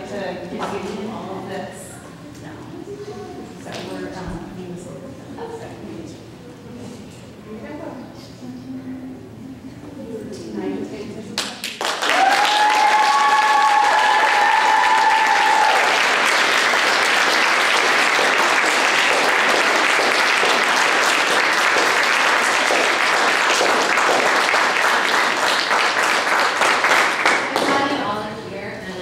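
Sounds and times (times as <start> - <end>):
audience applauding: 11.4 - 28.0
people cheering: 11.9 - 27.8.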